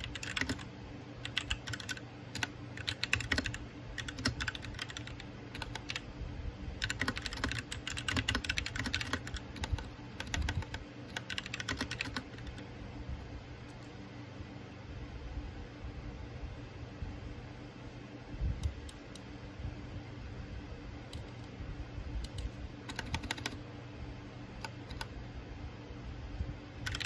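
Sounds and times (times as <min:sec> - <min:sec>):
mechanical keyboard keys clacking: 0:00.0 - 0:06.0, 0:06.8 - 0:12.6, 0:22.3 - 0:23.6, 0:24.6 - 0:25.1.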